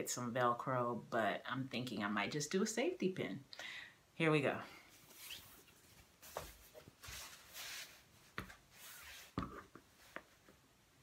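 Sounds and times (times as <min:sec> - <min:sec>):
fabric rustling: 0:04.9 - 0:10.6
soft taps: 0:08.4 - 0:08.6.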